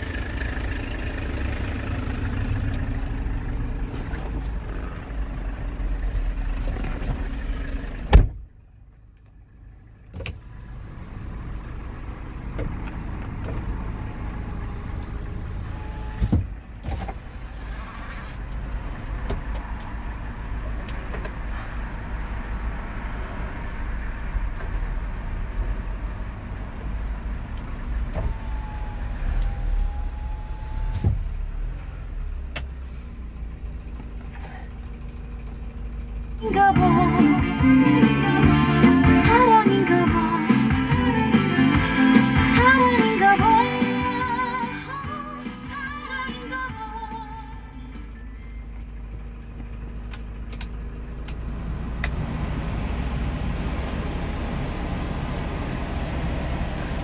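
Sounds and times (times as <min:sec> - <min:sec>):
truck engine idling: 0:00.0 - 0:57.0
electric window motor whining: 0:10.2 - 0:20.0, 0:27.5 - 0:32.6.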